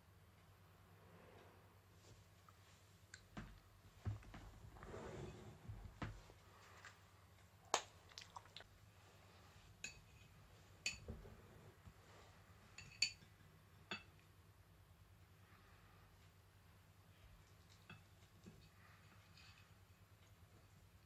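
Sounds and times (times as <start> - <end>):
knife clinking on ceramic: 12.8 - 13.3.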